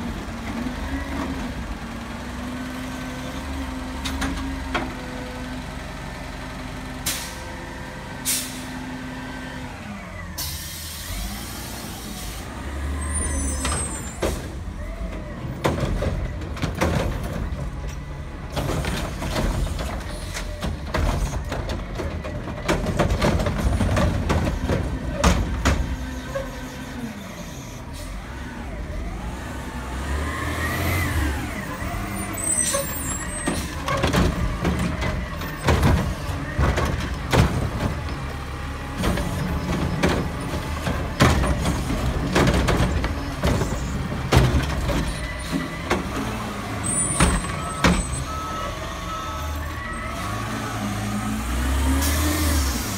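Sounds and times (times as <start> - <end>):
diesel engine revving: 0.0 - 52.9
air brakes hissing: 7.0 - 7.5, 8.2 - 8.8, 10.4 - 12.5
carts knocking and banging: 13.6 - 26.5, 32.3 - 48.3.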